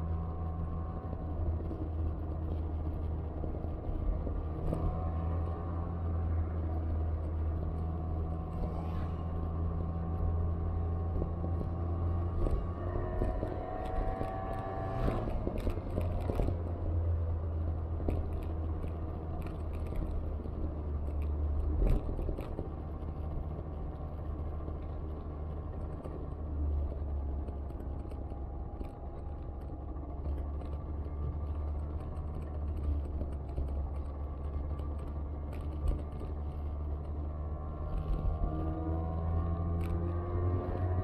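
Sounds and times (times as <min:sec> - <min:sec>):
wind and road noise: 0:00.0 - 0:41.0
bicycle ticks and rattles: 0:09.4 - 0:41.0.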